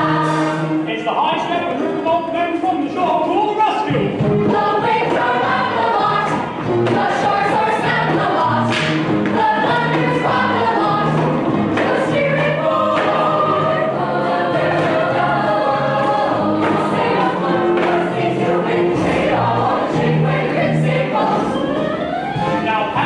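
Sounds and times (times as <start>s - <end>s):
musical accompaniment: 0.0s - 23.0s
cast singing in chorus: 4.5s - 21.8s.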